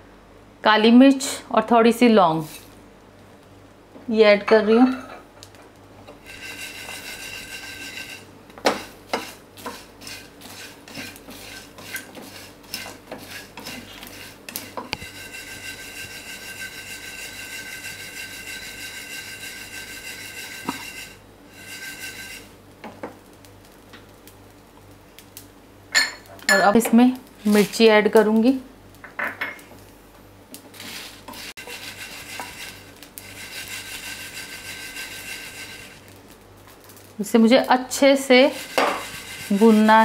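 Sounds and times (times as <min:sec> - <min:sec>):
spices scraping in steel pan: 0:02.3 - 0:02.8, 0:06.1 - 0:23.8, 0:25.9 - 0:28.6, 0:30.5 - 0:40.0.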